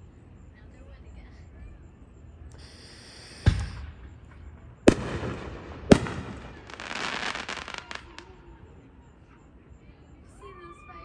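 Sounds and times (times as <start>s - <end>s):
firework whistle: 2.5s - 4.2s
dense firework crackling: 2.6s - 8.4s
deep firework boom: 3.4s - 4.2s, 4.9s - 6.6s
sharp bangs with echo: 4.9s - 6.6s.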